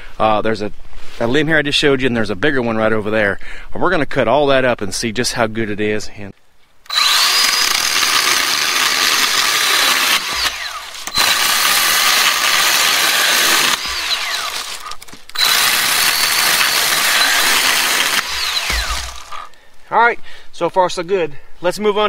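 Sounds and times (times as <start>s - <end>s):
pruning saw cutting with whine: 6.9s - 19.6s.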